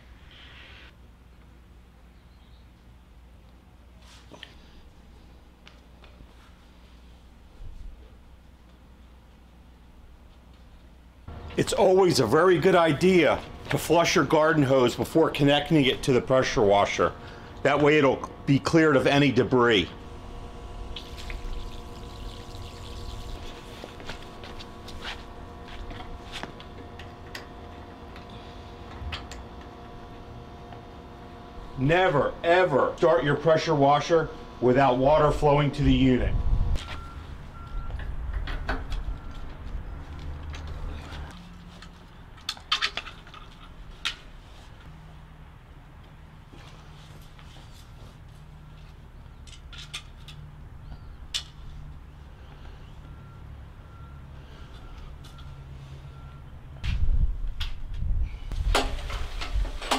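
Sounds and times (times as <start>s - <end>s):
steady low rumble: 11.1s - 41.4s.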